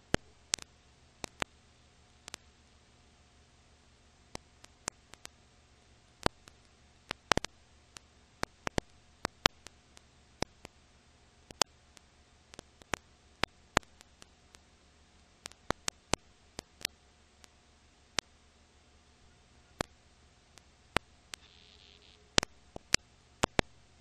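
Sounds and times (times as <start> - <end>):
film crackle clicks and pops: 0.0 - 1.6, 2.2 - 2.5, 4.3 - 5.4, 6.2 - 10.8, 11.4 - 14.7, 15.4 - 18.3, 19.7 - 23.8
faint hum: 0.0 - 24.0
low steady hiss: 0.0 - 24.0.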